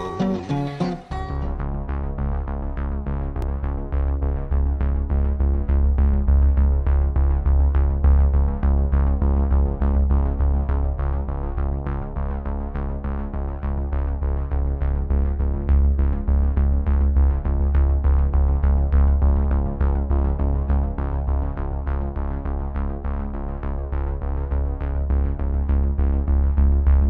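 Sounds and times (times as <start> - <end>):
electronic music with steady beat: 0.0 - 1.6.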